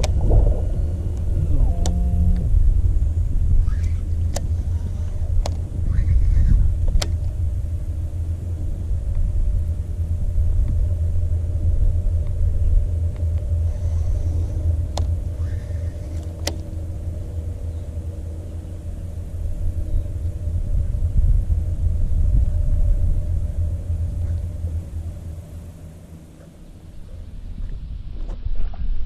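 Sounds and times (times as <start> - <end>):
faint steady hum: 0.0 - 29.0
wind buffeting microphone: 0.0 - 29.0
sharp clicks: 1.2 - 2.5.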